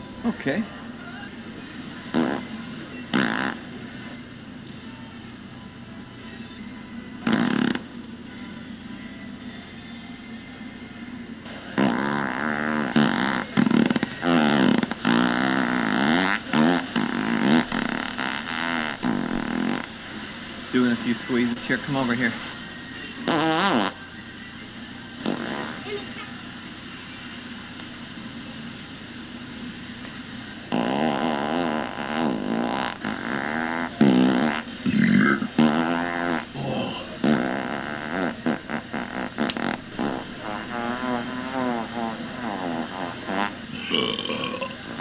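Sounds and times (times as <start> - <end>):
electronic fart sounds: 2.1 - 2.5, 3.1 - 3.7, 7.2 - 7.9, 11.7 - 20.0, 23.2 - 24.0, 25.2 - 26.1, 30.7 - 45.0.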